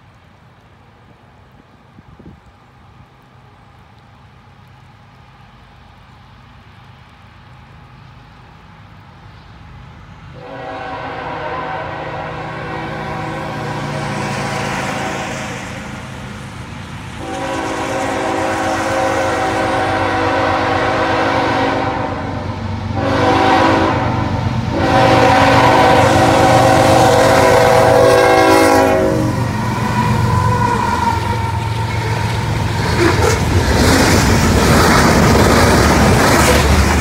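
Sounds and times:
locomotive air horn blasts: 10.4s - 15.8s, 17.2s - 32.3s
locomotive engines running: 29.2s - 37.0s.

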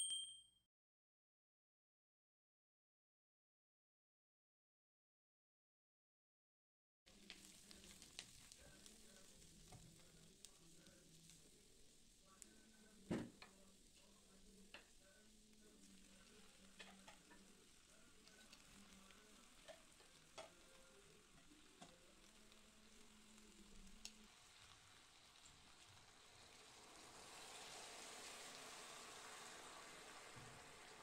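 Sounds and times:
broth poured into hot pan: 7.1s - 31.0s
onions sizzling in a pan: 7.1s - 31.0s.

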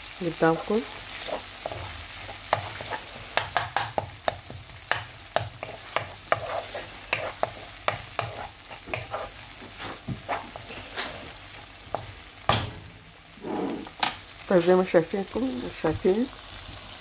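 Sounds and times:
sizzle of frying in oil: 0.0s - 17.0s
wooden spatula scraping frying pan: 0.4s - 3.9s, 5.4s - 12.1s.

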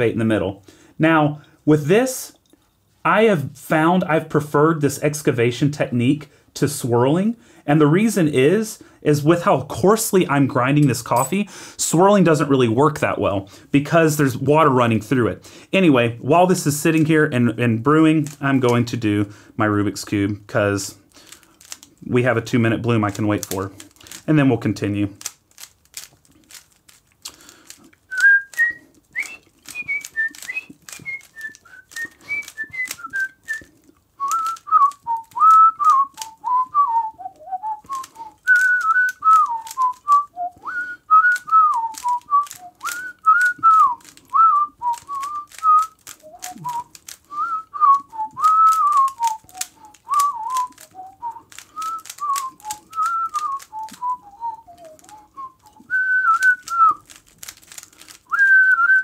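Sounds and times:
puzzle cube clicking: 18.1s - 18.9s, 21.0s - 22.1s, 22.9s - 59.0s
person whistling a tune: 28.1s - 57.0s, 58.3s - 59.0s.

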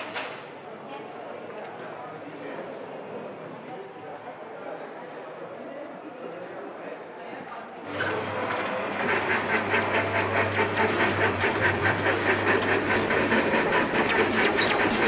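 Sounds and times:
metal roller shutter rattling: 7.9s - 15.0s.

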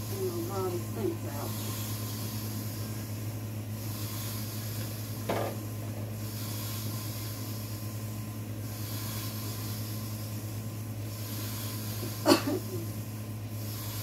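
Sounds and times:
clunk in sink: 5.3s - 5.6s.

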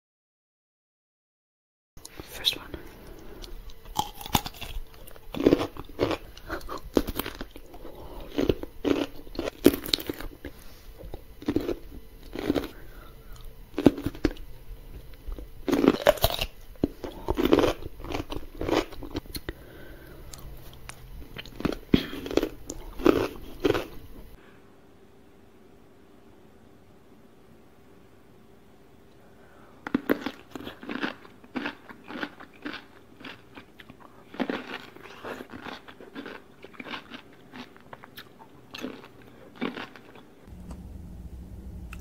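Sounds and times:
crisp wet chewing crunches: 3.4s - 14.5s, 15.2s - 24.1s, 29.9s - 40.3s.

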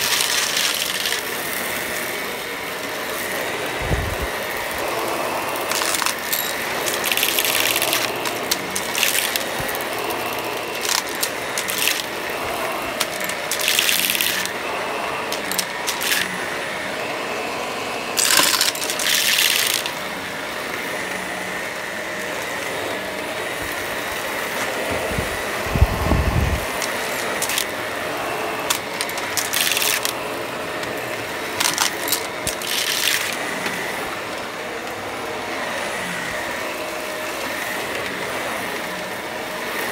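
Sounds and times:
debris rattling through vacuum: 0.0s - 1.8s, 3.7s - 16.4s, 18.2s - 20.0s, 24.5s - 34.2s
vacuum cleaner running: 0.0s - 39.9s.

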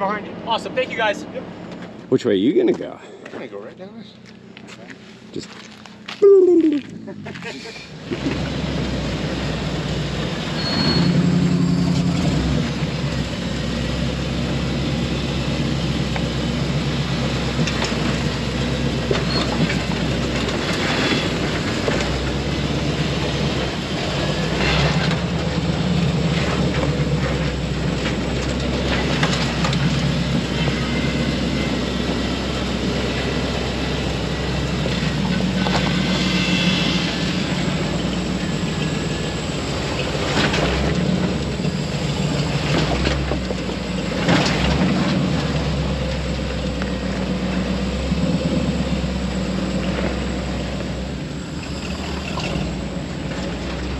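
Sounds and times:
low engine drone: 3.0s - 53.9s
suspension knocks and creaks: 17.5s - 32.3s, 39.8s - 48.7s.

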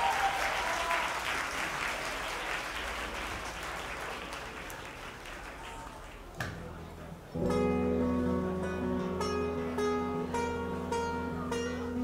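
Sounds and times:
concert crowd applauding: 0.0s - 6.4s.

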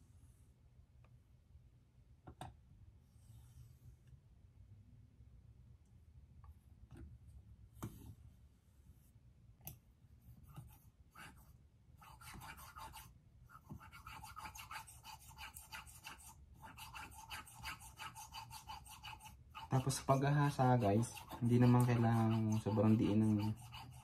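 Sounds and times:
scissor blade on whetstone: 13.9s - 24.0s.

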